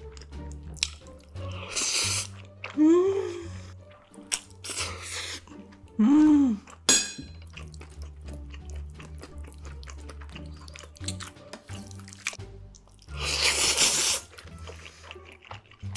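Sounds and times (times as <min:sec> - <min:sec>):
sticky clicks and chews: 0:00.0 - 0:01.4, 0:03.8 - 0:04.8, 0:06.6 - 0:15.9
wet noodle slurps: 0:00.8 - 0:02.5, 0:13.1 - 0:15.9.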